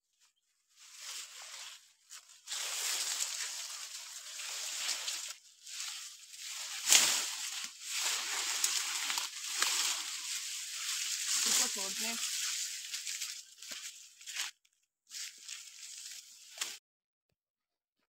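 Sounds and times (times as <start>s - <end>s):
dry leaves rustling and crackling: 0.7s - 14.5s, 15.1s - 16.8s
stalk cracking: 2.5s - 14.5s.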